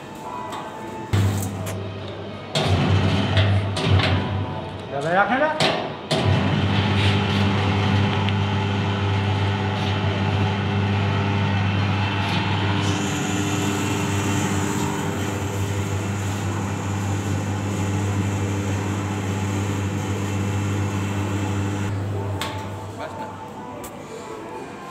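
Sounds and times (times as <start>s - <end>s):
machine motor humming: 6.3s - 22.4s.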